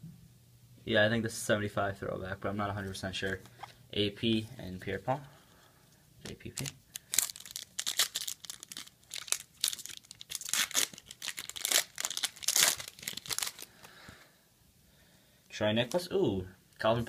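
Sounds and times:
wrapper tearing and crinkling: 6.5 - 13.7.

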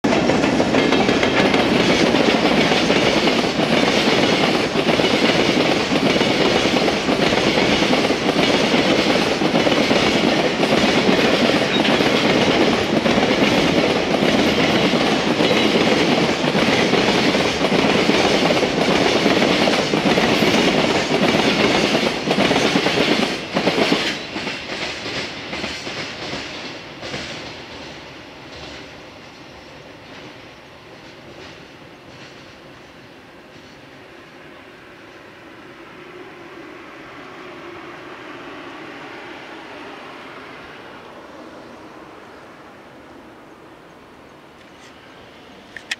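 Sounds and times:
freight train wagons rumbling past: 0.0 - 45.9
train wheel clicks: 0.1 - 27.9, 45.7 - 45.9.

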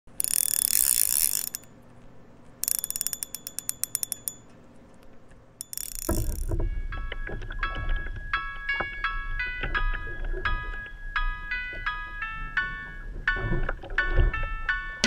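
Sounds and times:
fishing reel drag ratcheting: 0.1 - 1.7, 2.6 - 4.4, 5.6 - 6.5
music: 5.9 - 15.0.

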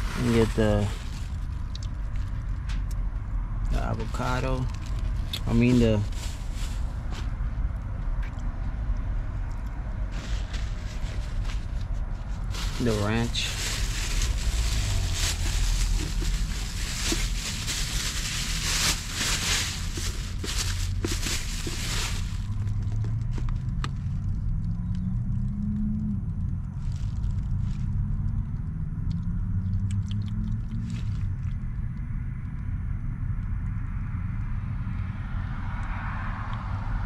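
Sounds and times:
passing vehicles rumbling: 0.0 - 37.0.

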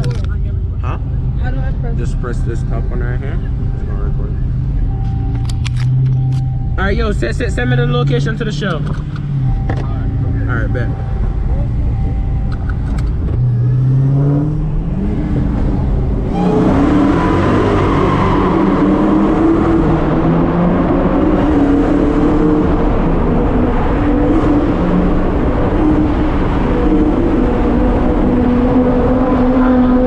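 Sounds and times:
car engine revving: 0.0 - 30.0.

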